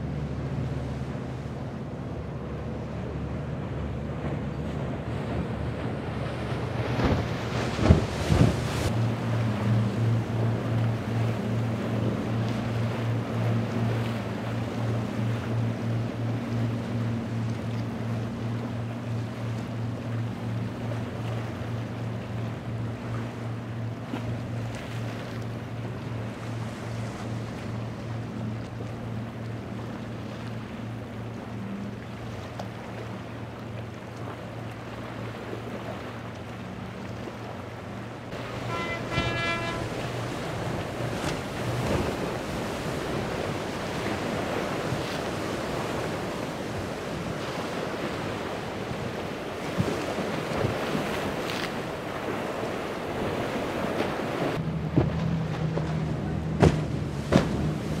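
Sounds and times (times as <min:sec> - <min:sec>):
hull rushing through waves: 0:00.0 - 0:58.0
hull slapping waves: 0:00.0 - 0:58.0
outboard engine drone: 0:00.0 - 0:58.0.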